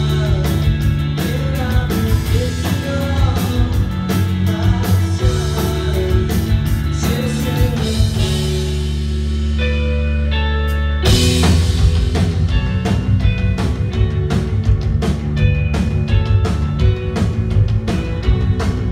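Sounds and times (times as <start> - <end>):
person singing: 0.0 - 8.8
live rock band playing: 0.0 - 18.9
drum hits: 11.1 - 18.9.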